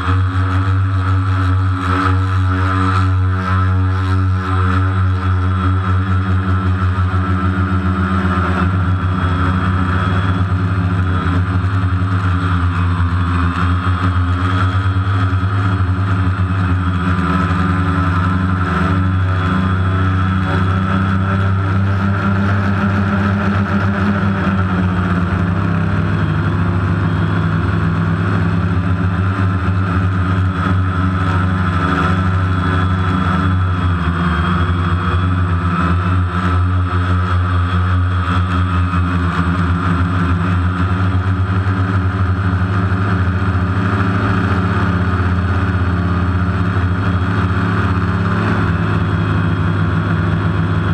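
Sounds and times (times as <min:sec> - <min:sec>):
drone motors humming and whining: 0:00.0 - 0:50.9.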